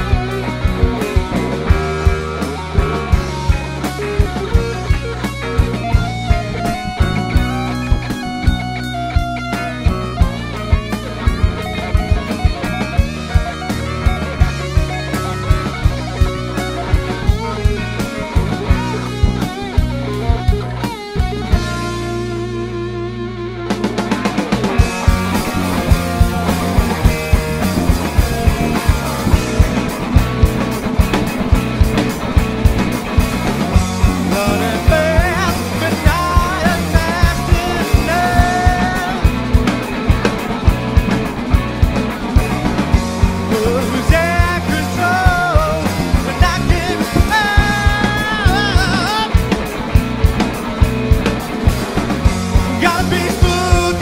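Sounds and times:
bass guitar: 0.0 - 54.0
distorted electric guitars: 0.0 - 54.0
drum kit: 0.0 - 54.0
rock band playing: 0.0 - 54.0
man singing: 25.6 - 29.7, 34.1 - 39.5, 43.4 - 49.5, 52.6 - 54.0.

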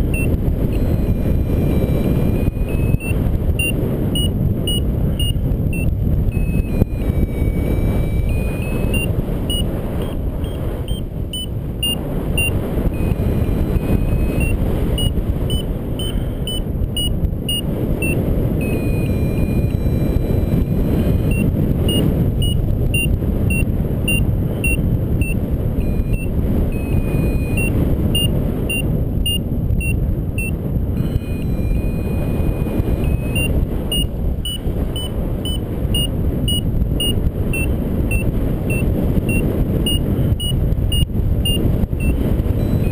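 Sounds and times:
variometer beeping: 0.0 - 42.9
wind rush on microphone: 0.0 - 42.9.

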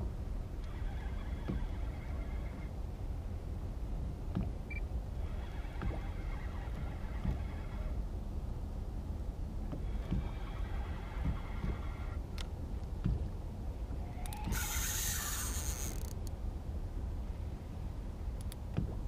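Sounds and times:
fishing reel whirring: 0.7 - 2.6, 5.2 - 8.0, 14.1 - 16.2.

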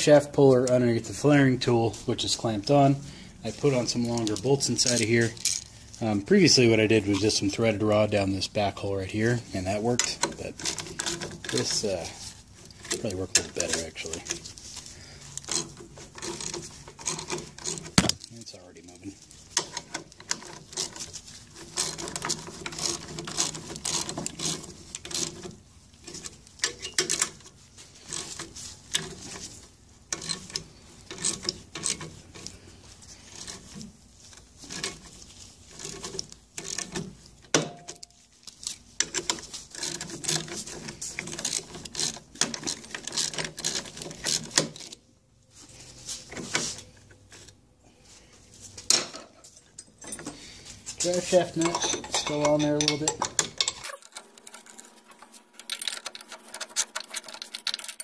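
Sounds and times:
wrench clicking and clanking: 41.2 - 45.0, 51.3 - 54.7.

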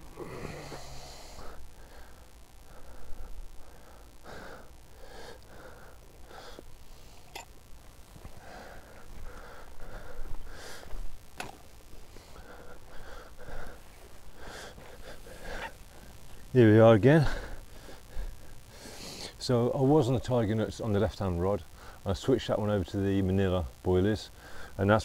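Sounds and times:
person breathing: 0.0 - 7.4, 8.2 - 11.1, 12.0 - 16.4, 17.2 - 19.4, 21.7 - 22.0, 24.4 - 24.8.

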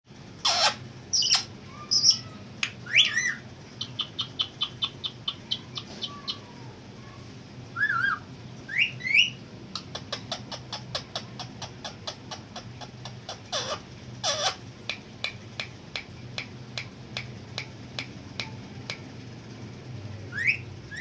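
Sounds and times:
parakeet squawks and chirps: 0.4 - 6.6, 7.8 - 14.7, 20.3 - 21.0.

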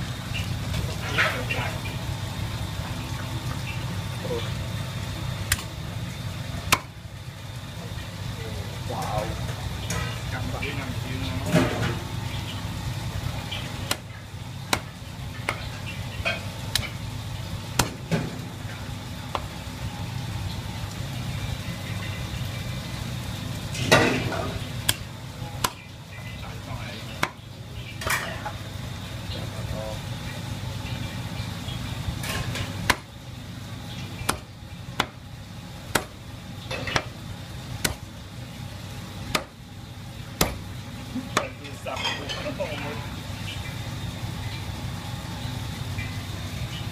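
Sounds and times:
steady low hum: 0.0 - 46.9
cleaver chopping on block: 17.8 - 18.0, 34.3 - 35.2, 35.9 - 36.2, 37.8 - 38.0, 39.3 - 39.5, 40.4 - 40.6.

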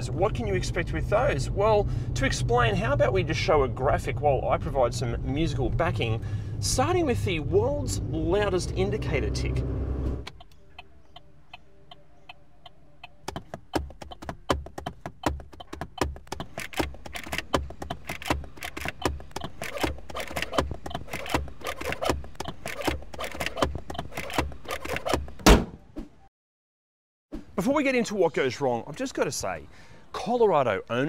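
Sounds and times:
turn signal ticking: 10.1 - 24.6
hands drumming on dashboard: 13.2 - 21.6.

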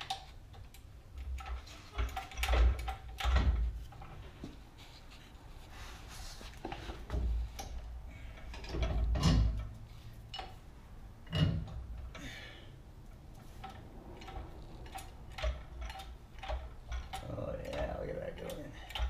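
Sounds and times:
metal clunks and knocks: 1.2 - 4.6, 6.6 - 10.6, 11.2 - 12.4.

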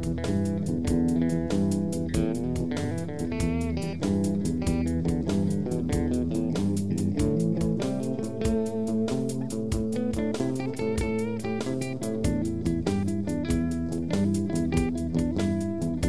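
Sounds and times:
lead guitar bent notes: 0.0 - 16.0
slow electric blues: 0.0 - 16.0.

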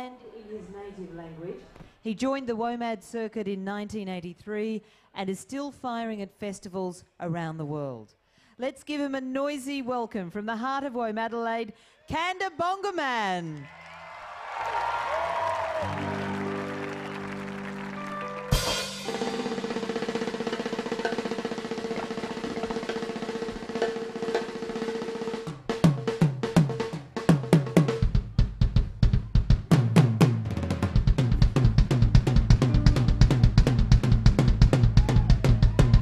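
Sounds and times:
drum roll: 15.7 - 36.0
tom and bass drum strokes: 18.5 - 36.0.

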